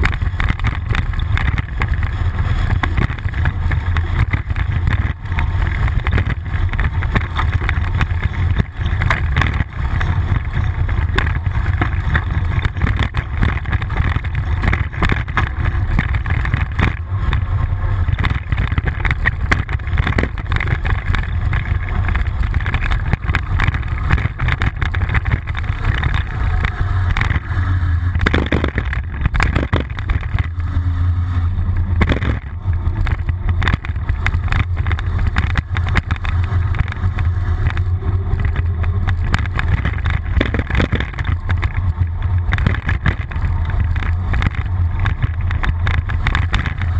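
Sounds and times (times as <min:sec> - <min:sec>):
bicycle rattle: 0:00.0 - 0:46.9
wind and road rumble: 0:00.0 - 0:46.9
sharp knocks: 0:31.9 - 0:37.9.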